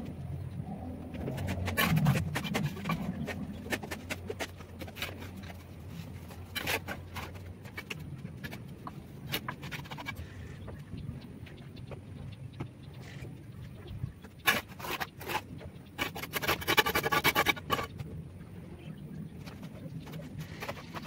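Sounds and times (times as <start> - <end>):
trowel scraping mortar: 1.2 - 8.0, 14.4 - 15.4, 16.0 - 18.0, 20.0 - 21.0.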